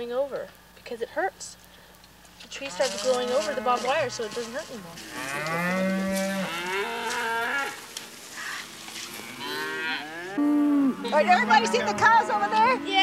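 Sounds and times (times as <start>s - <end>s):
cow mooing: 2.6s - 7.8s, 8.5s - 13.0s.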